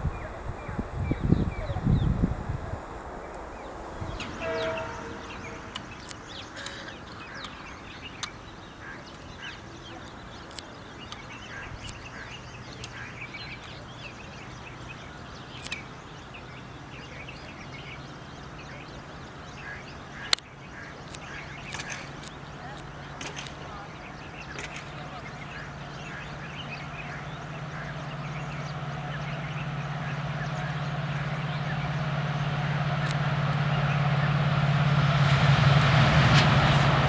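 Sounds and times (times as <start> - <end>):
faint low steady hum: 0.0 - 34.3
birds chirping and calling: 0.0 - 34.6
sharp click: 15.6 - 15.9.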